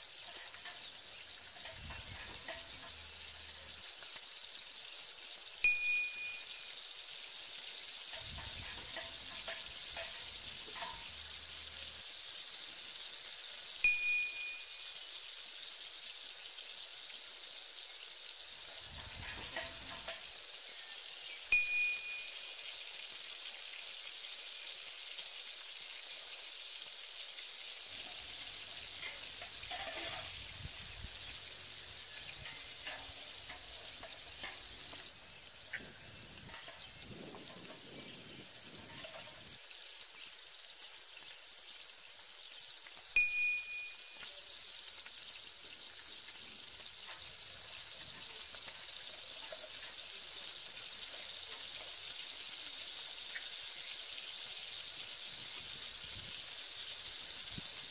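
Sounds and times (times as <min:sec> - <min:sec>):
broth sizzling over wood fire: 0:00.0 - 0:57.9
spoon striking metal pot: 0:01.6 - 0:03.0, 0:05.6 - 0:06.6, 0:08.1 - 0:11.0, 0:13.8 - 0:14.6, 0:21.5 - 0:22.3, 0:43.2 - 0:44.2.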